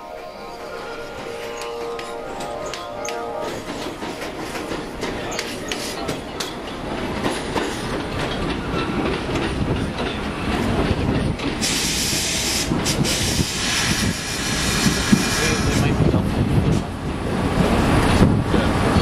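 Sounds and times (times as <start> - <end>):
subway train rumbling past: 0.0 - 19.0
wheels clattering over rail joints: 1.3 - 11.7
loud hiss: 11.6 - 16.0.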